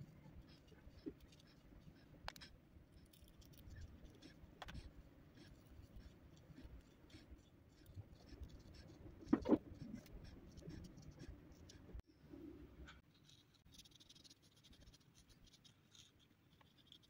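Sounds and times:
marker scratching on paper: 0:00.2 - 0:12.0.

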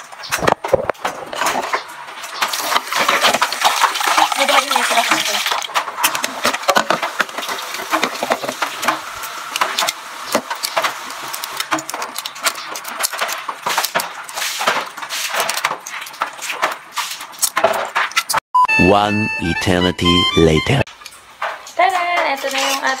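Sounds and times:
egg shell cracking and peeling: 0:05.5 - 0:18.4.

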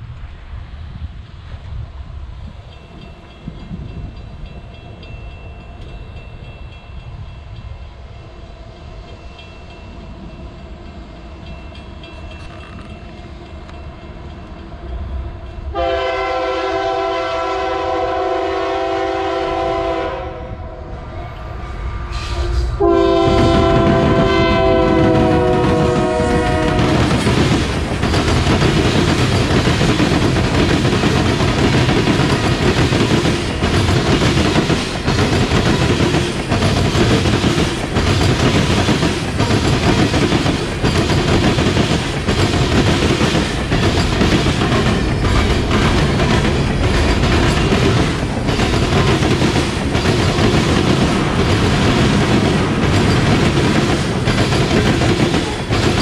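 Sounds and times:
train wheels clickety-clack on rails: 0:00.0 - 0:20.3, 0:20.9 - 0:56.0
locomotive rumble: 0:09.1 - 0:56.0
train horn blasts: 0:15.7 - 0:21.0, 0:22.0 - 0:27.1.

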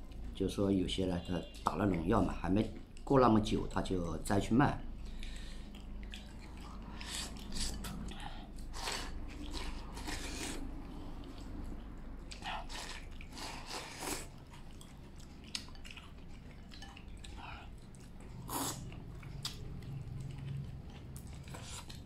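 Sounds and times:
chewing and slurping: 0:04.9 - 0:22.0.

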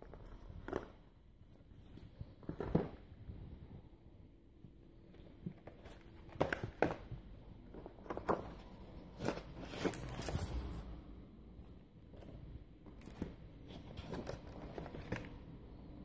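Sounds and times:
cardboard taps and rustles: 0:05.2 - 0:08.6.

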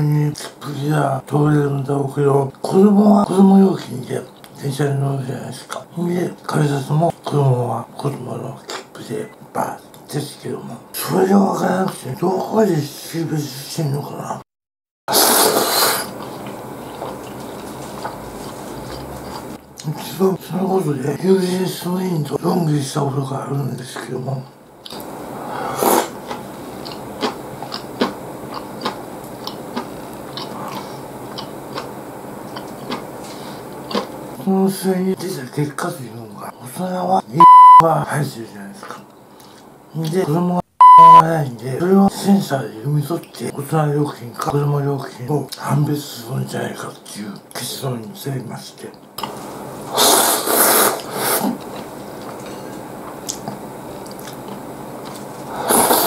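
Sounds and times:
noodles slurped loudly: 0:15.1 - 0:16.4, 0:49.9 - 0:51.6, 0:55.5 - 0:56.0
noodle slurp: 0:15.1 - 0:19.6, 0:25.6 - 0:28.1, 0:49.9 - 0:51.8, 0:55.4 - 0:56.0
wet chewing with mouth clicks: 0:15.2 - 0:19.9, 0:24.8 - 0:25.1, 0:25.8 - 0:34.1, 0:50.0 - 0:56.0.

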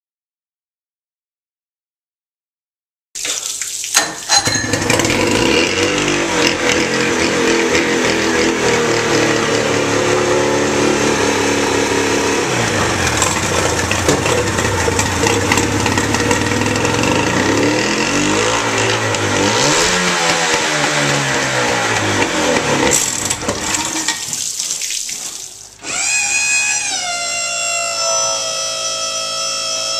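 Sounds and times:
water splashing: 0:03.2 - 0:05.3, 0:23.9 - 0:25.8
outboard motor running: 0:04.6 - 0:24.0.

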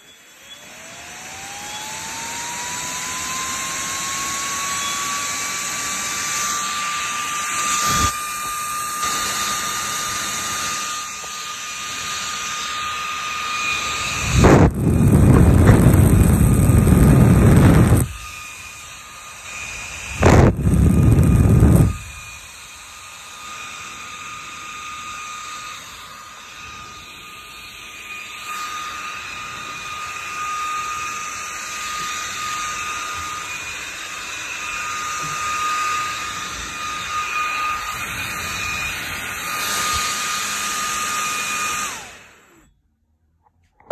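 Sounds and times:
server fan high whine: 0:11.9 - 0:22.4
air blast buffeting microphone: 0:14.0 - 0:18.3, 0:20.1 - 0:22.3.

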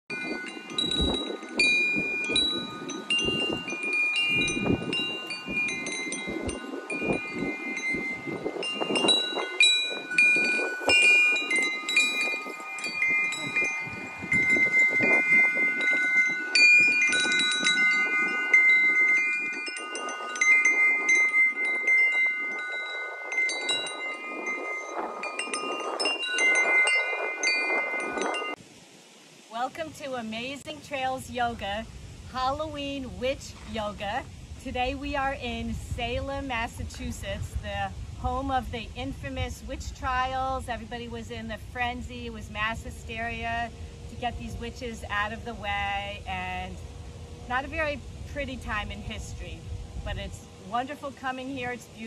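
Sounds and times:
wind chimes ringing: 0:00.1 - 0:28.6, 0:41.4 - 0:52.0.

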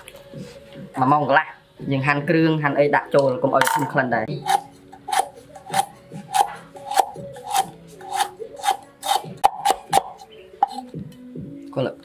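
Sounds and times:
cleaver slicing ginger on wood: 0:04.4 - 0:11.0.

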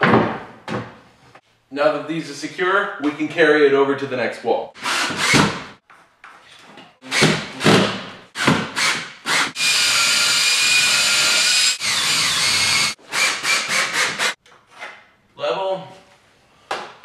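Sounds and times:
cordless drill driving screws: 0:04.8 - 0:05.5, 0:08.8 - 0:14.4.

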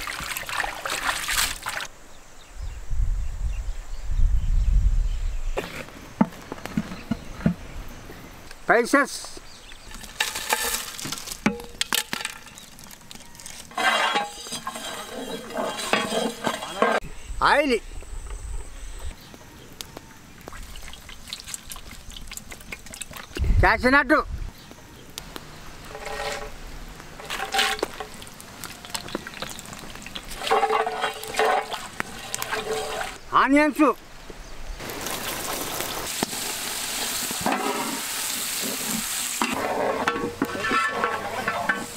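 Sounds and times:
spices landing in metal pot: 0:09.8 - 0:17.0, 0:27.2 - 0:33.2
metal ladle scraping pot: 0:09.9 - 0:17.0, 0:25.8 - 0:26.6, 0:27.2 - 0:33.2, 0:37.4 - 0:41.9
spatula stirring in wok: 0:13.5 - 0:17.0, 0:27.2 - 0:33.2, 0:38.6 - 0:41.9
nuts sizzling in hot oil: 0:25.8 - 0:33.2, 0:34.8 - 0:41.9.

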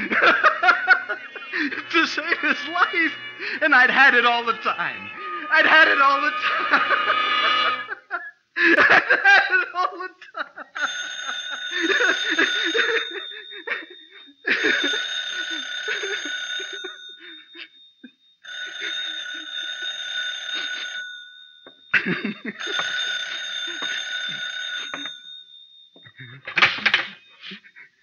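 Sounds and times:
man laughing: 0:00.0 - 0:04.5, 0:05.1 - 0:17.7, 0:22.0 - 0:22.9, 0:26.1 - 0:26.6
telephone bell ringing: 0:00.0 - 0:08.1, 0:10.7 - 0:27.5.

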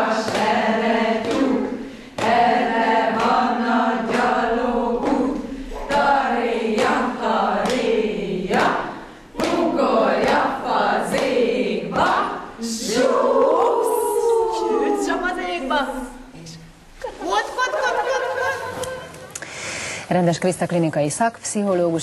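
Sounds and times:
women singing in unison: 0:00.0 - 0:15.2.

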